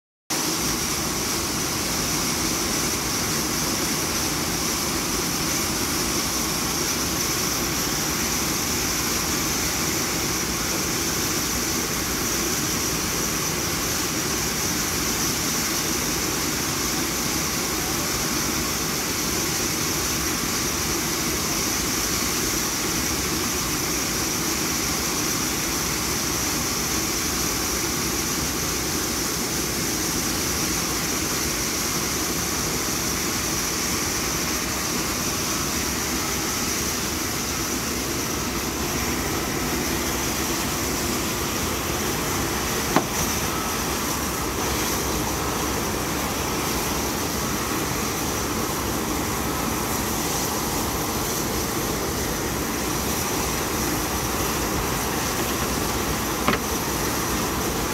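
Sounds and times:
aircraft turbine whine: 0.4s - 57.9s.

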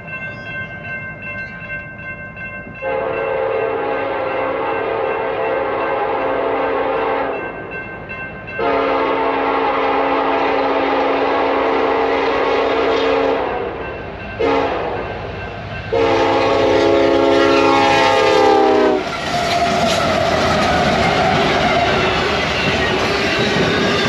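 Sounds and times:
train cars rushing and clattering: 0.0s - 24.0s
locomotive horn blasts: 2.8s - 7.4s, 8.6s - 13.7s, 14.4s - 15.1s, 15.9s - 19.1s.

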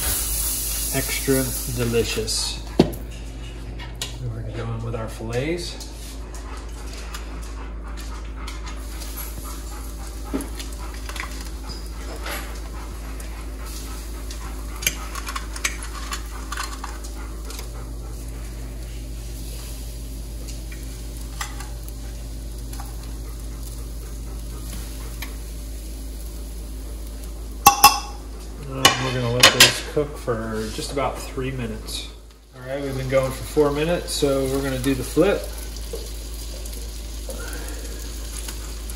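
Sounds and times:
fish frying in a skillet: 0.0s - 2.0s, 13.2s - 29.6s, 32.7s - 38.9s.

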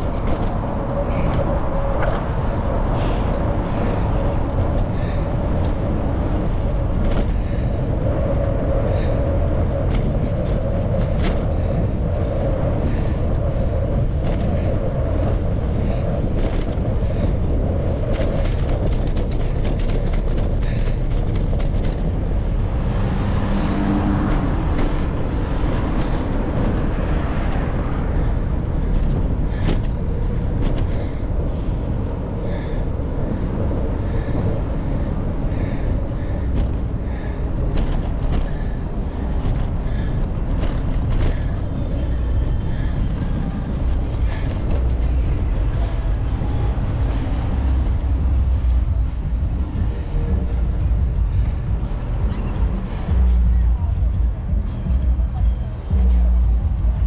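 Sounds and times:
low rumble of wind and road: 0.0s - 57.0s
sharp clicks and rattles: 9.1s - 22.8s.

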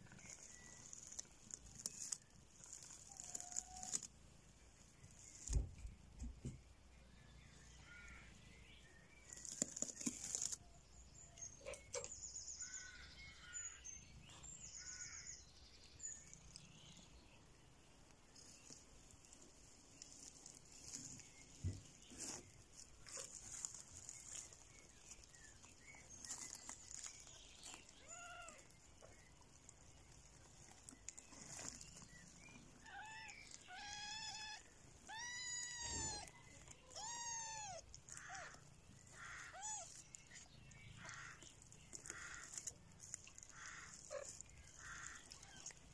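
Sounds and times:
rustling: 0.0s - 13.6s, 14.4s - 45.9s
kittens mewing: 32.8s - 40.1s, 41.9s - 45.9s.

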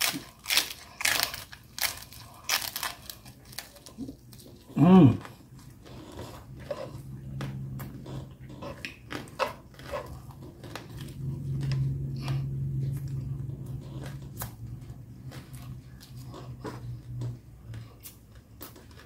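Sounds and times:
person humming mmm: 4.7s - 5.3s.

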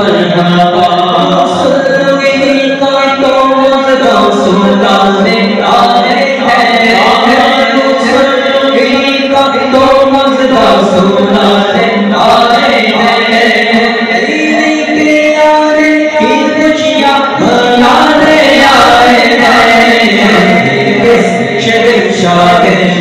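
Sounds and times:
men chanting through microphones: 0.0s - 23.0s.

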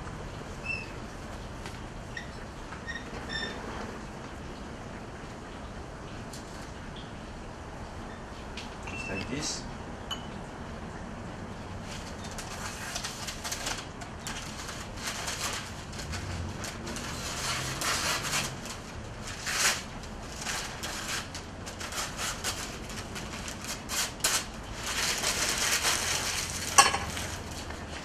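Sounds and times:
parchment paper rustling and crinkling: 11.8s - 28.0s
knife cutting paper: 11.9s - 27.6s.

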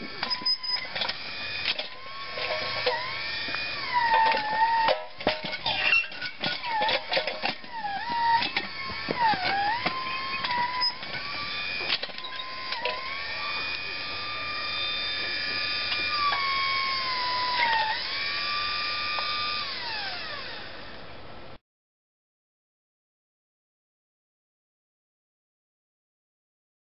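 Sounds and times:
electric motor whining: 0.0s - 21.0s
bucket scraping and knocking in dirt: 0.2s - 13.0s.

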